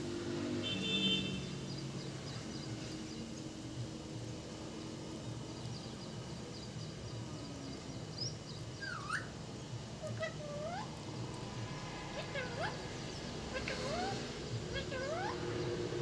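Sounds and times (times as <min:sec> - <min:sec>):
parrot calls: 0:08.8 - 0:09.4, 0:10.0 - 0:11.0, 0:12.1 - 0:15.5.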